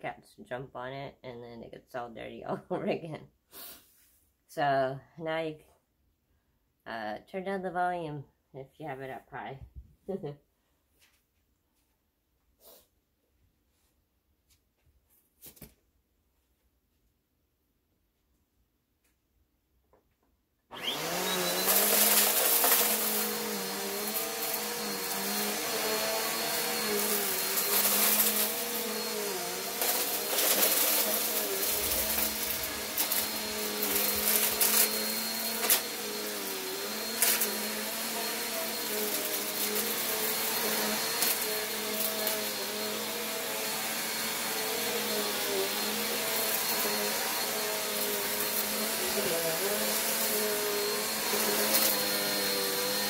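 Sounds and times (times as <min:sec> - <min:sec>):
vacuum cleaner running: 0:20.7 - 0:53.0.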